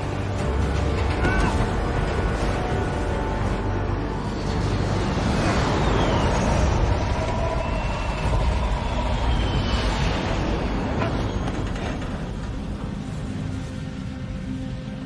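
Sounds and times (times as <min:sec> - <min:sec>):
low-flying jet plane roar: 0:00.0 - 0:15.0
rushing wind: 0:00.0 - 0:15.0.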